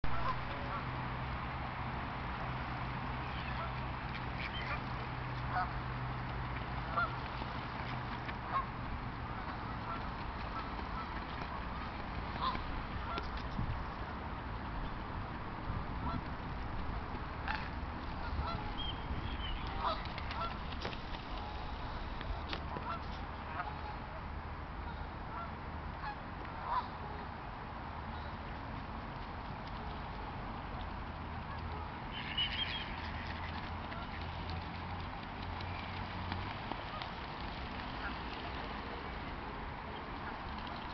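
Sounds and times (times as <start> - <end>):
outdoor background noise: 0.0 - 40.9
geese honking: 0.1 - 0.8, 3.3 - 5.8, 6.9 - 7.2, 7.8 - 13.4, 17.4 - 24.0, 24.9 - 27.2, 31.5 - 35.0, 35.6 - 38.8.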